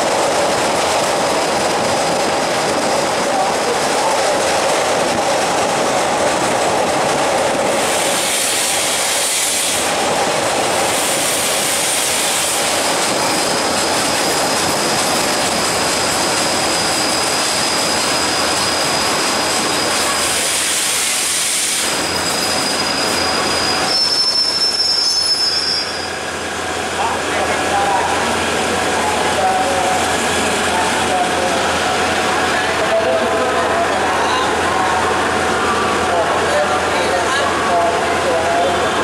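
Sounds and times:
train wheels rumbling on rail: 0.0s - 39.0s
high train squeal: 7.7s - 10.1s, 10.7s - 33.0s.

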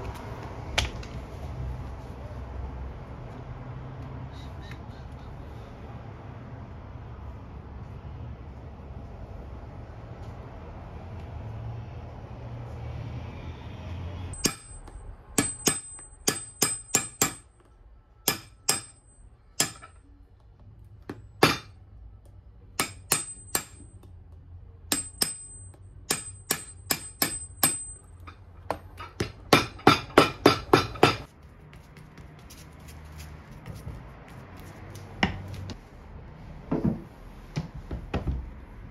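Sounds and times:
hammer striking rubber boot sole: 14.4s - 17.6s, 18.3s - 20.0s, 21.0s - 21.8s, 24.9s - 28.0s, 28.7s - 31.3s.

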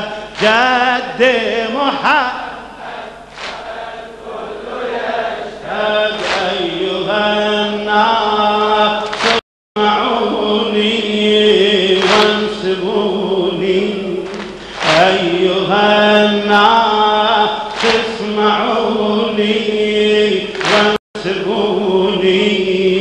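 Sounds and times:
man chanting lament: 0.0s - 2.8s, 5.6s - 23.0s
crowd: 2.3s - 6.9s, 9.0s - 9.4s, 11.9s - 12.6s, 14.2s - 16.0s, 17.6s - 18.9s, 20.4s - 21.0s.

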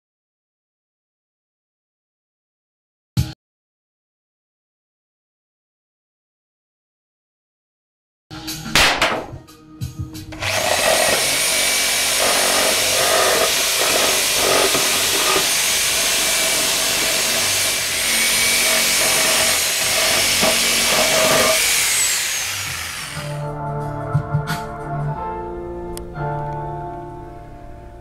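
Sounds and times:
electric power sander on wood: 10.4s - 23.5s.

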